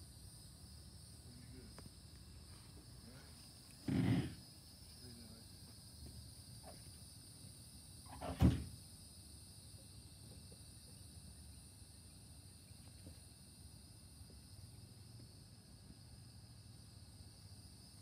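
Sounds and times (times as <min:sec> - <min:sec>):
insects chirring: 0:00.0 - 0:18.0
car door slamming: 0:08.2 - 0:08.7.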